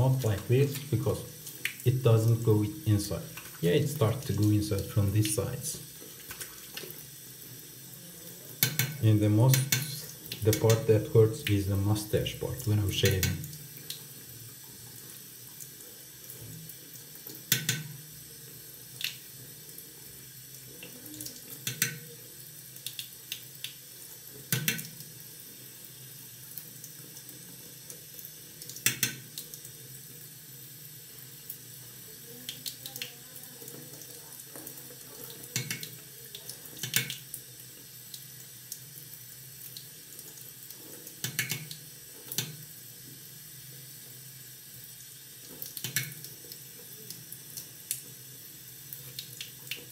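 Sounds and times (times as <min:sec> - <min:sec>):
tap running into sink: 0:08.6 - 0:11.6, 0:12.6 - 0:14.0, 0:17.3 - 0:18.0, 0:21.6 - 0:22.1, 0:24.4 - 0:25.0, 0:34.6 - 0:36.0, 0:41.2 - 0:42.6, 0:45.4 - 0:46.6.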